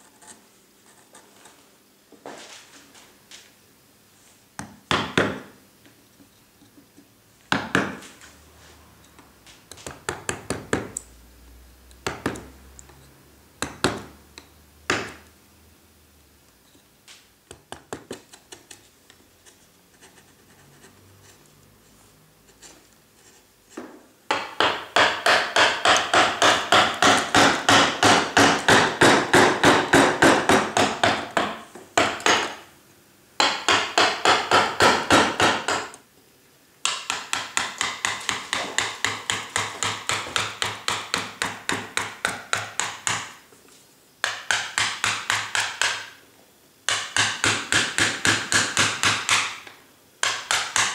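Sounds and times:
mallet striking a gouge: 24.3 - 32.6, 50.2 - 50.9.

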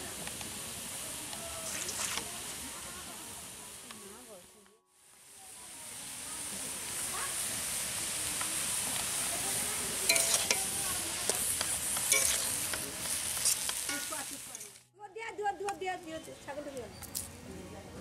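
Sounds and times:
greens sizzling in a wok: 0.0 - 18.0
metal spatula scraping a wok: 9.0 - 14.8.

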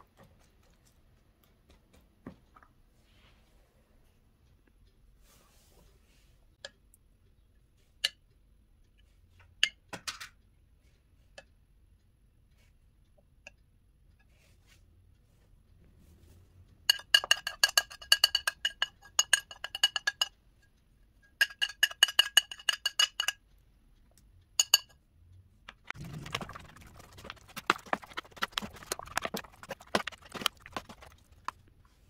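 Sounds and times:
metal spoon clinking on ceramic plate: 16.9 - 20.3, 21.4 - 23.4, 24.6 - 25.0
spoon knocking against bowl: 16.9 - 20.3, 21.4 - 23.4
wet squelching of stirred food: 25.9 - 32.0.

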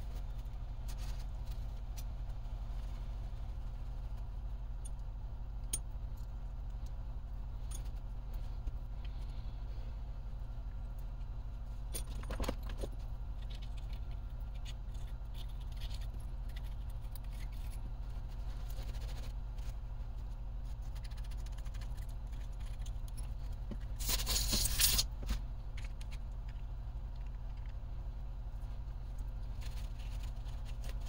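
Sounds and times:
steady low hum: 0.0 - 31.0
scraping rustle: 14.9 - 25.4, 28.7 - 31.0.

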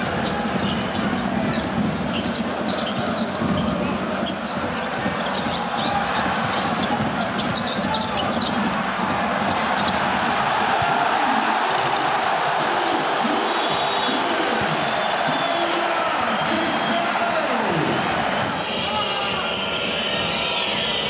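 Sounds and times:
crowd din: 0.0 - 21.0
sneakers squeaking on court: 0.5 - 8.6.

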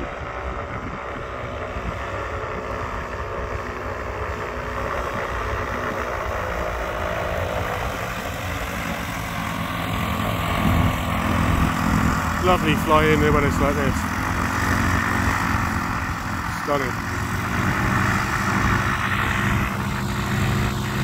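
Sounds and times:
paramotor engine and propeller: 0.0 - 21.0
wind rumbling on microphone: 0.0 - 21.0.

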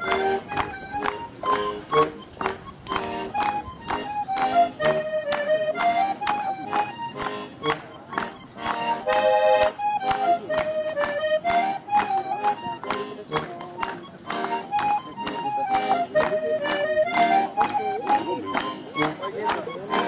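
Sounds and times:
accordion folk dance tune: 0.0 - 20.0.

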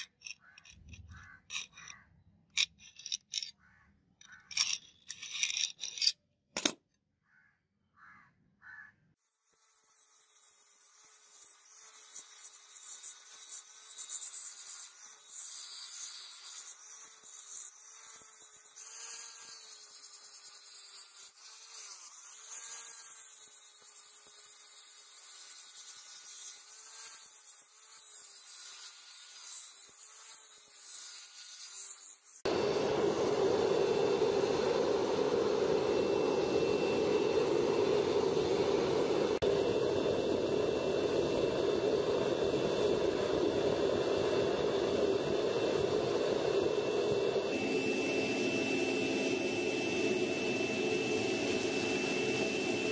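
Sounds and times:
angle grinder sanding metal: 0.0 - 2.0, 9.4 - 39.5, 42.3 - 52.9
gas burner rushing: 32.5 - 52.9.

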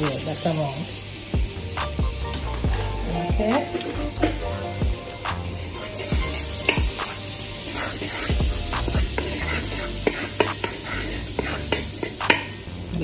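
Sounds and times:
butter sizzling and bubbling: 0.0 - 13.0.

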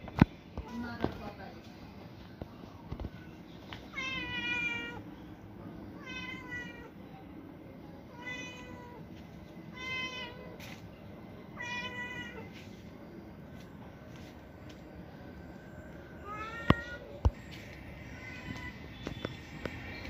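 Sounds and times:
cat meowing: 3.9 - 5.0, 6.0 - 6.9, 11.6 - 12.5, 16.2 - 17.1.

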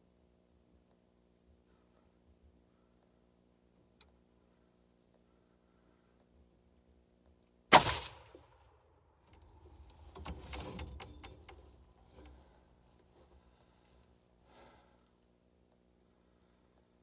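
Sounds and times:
rifle shot: 7.7 - 8.8.

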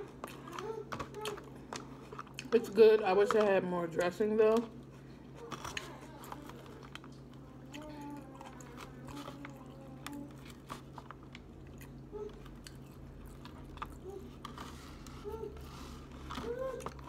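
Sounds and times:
person chewing: 0.0 - 2.6, 4.8 - 17.0.

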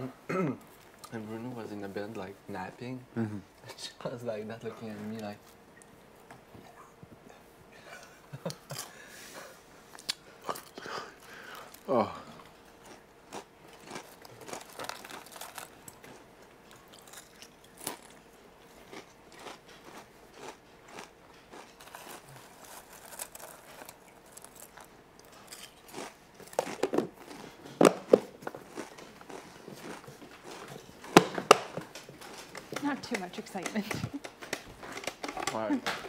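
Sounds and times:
person chewing crunchy snack: 10.0 - 32.7.

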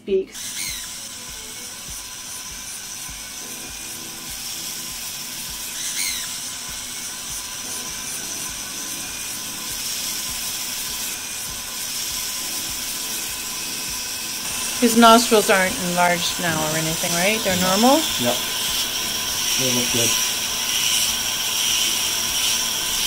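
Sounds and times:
rotary grinding tool whine: 0.3 - 23.0.

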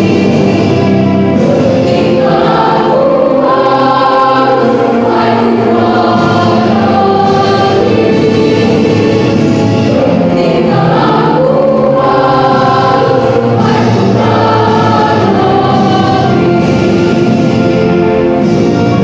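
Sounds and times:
girls' choir singing harmony: 0.0 - 18.8.

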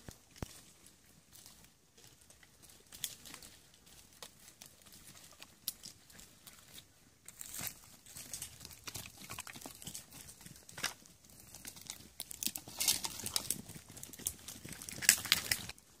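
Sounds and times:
rustling dry cane underfoot: 0.0 - 16.0
sheep biting reed stalks: 10.7 - 15.8.

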